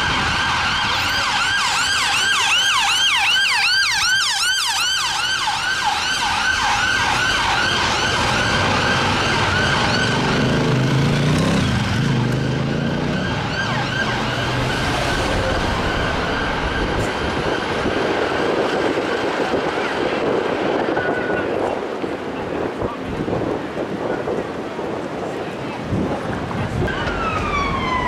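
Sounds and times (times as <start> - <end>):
fire engine siren yelping: 0.0 - 10.6, 12.9 - 19.3, 26.8 - 28.0
road traffic noise: 0.0 - 28.0.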